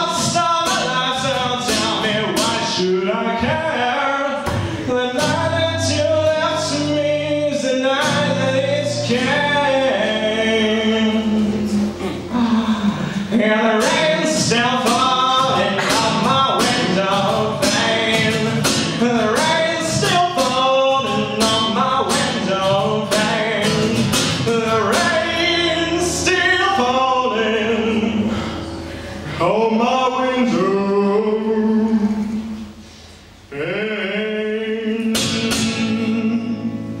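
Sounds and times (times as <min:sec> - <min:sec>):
man singing: 0:00.0 - 0:28.4, 0:29.3 - 0:32.7, 0:33.5 - 0:37.0
strummed acoustic guitar: 0:00.0 - 0:31.1, 0:34.9 - 0:37.0.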